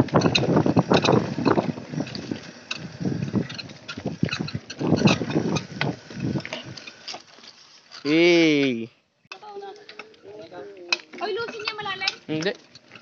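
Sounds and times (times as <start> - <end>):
wind on microphone: 0.0 - 6.8
bike rattling over bumps: 0.0 - 8.8, 9.5 - 13.0
bike tyres on dirt and leaves: 0.0 - 13.0.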